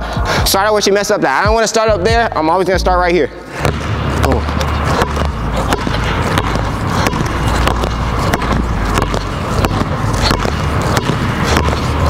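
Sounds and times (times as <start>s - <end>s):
basketballs bouncing on hardwood floor: 3.5s - 12.0s.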